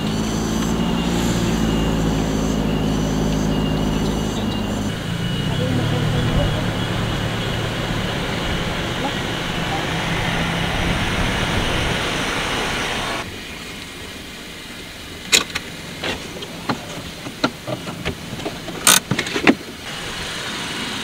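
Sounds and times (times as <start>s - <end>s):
car engine and road noise: 0.0s - 21.0s
sharp clicks and knocks: 15.3s - 19.8s.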